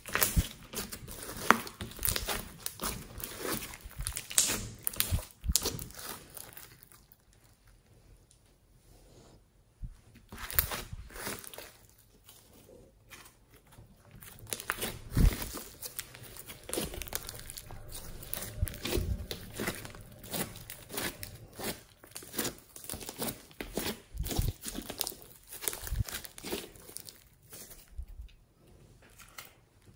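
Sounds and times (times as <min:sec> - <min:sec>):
slime crackling and popping: 0:00.0 - 0:07.6, 0:10.3 - 0:12.1, 0:14.0 - 0:27.9.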